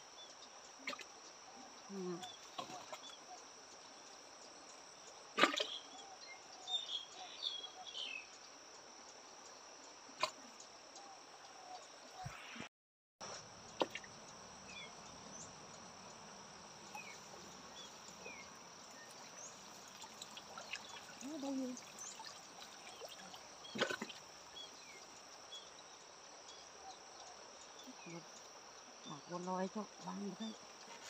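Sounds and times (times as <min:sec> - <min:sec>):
high insect drone: 0:13.3 - 0:31.0
water trickling and pouring: 0:17.4 - 0:25.5.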